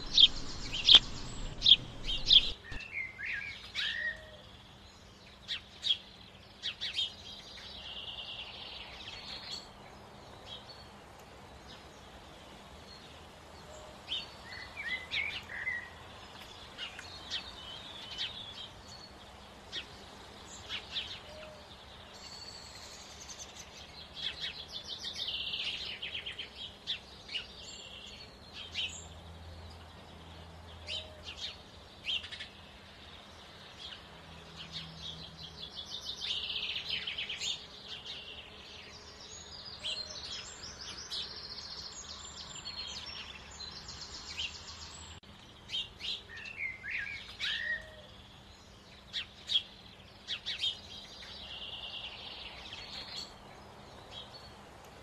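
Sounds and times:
short bird chirps: 0:00.0 - 0:03.1
songbirds trilling: 0:00.0 - 0:55.0.

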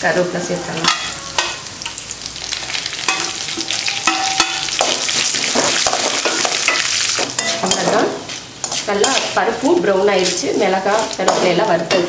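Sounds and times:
spices sizzling in hot oil: 0:00.2 - 0:12.0
spatula stirring and scraping: 0:03.0 - 0:12.0.

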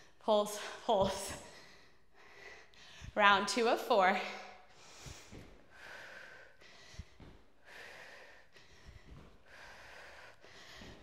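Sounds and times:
person breathing hard: 0:01.4 - 0:03.2, 0:04.4 - 0:11.0.

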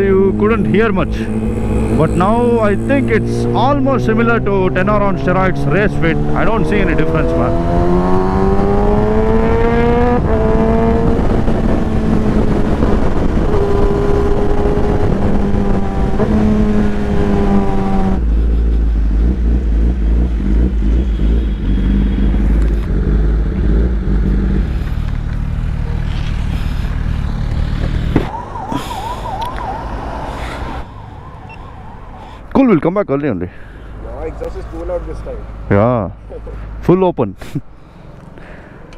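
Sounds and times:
motorcycle engine revving: 0:00.0 - 0:30.8
wind rush: 0:07.5 - 0:18.3
wavering siren-like tone: 0:28.1 - 0:32.5.

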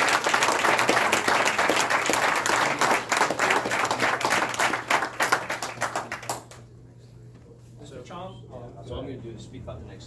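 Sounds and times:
group applause: 0:00.0 - 0:06.7.

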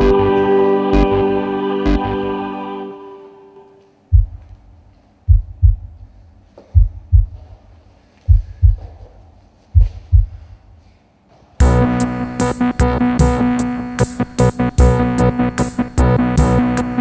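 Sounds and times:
heartbeat thumps: 0:04.1 - 0:07.7, 0:08.3 - 0:10.8.

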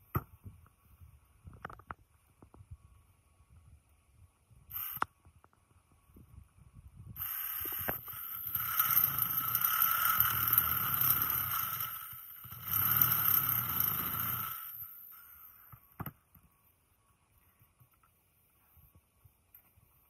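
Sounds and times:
electric drill cutting metal: 0:07.2 - 0:15.8.

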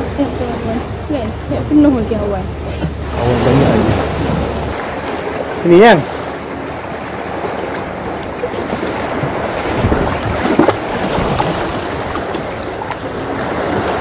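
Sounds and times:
sea water splashing on rocks: 0:08.6 - 0:14.0.

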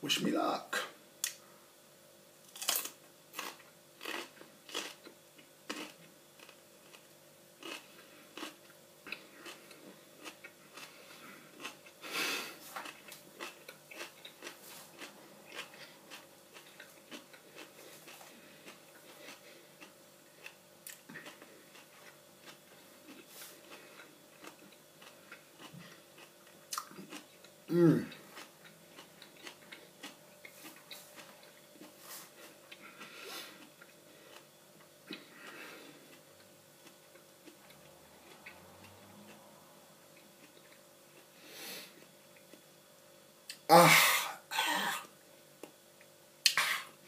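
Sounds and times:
crunchy chilli bites: 0:02.5 - 0:05.1.

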